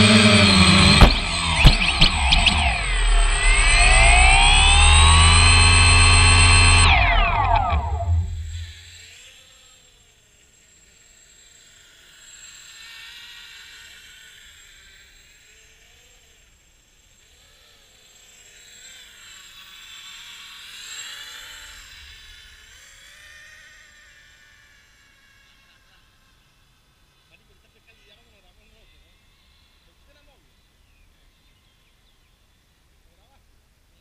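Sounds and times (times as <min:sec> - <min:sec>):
quadcopter propellers whining: 0:00.0 - 0:16.4.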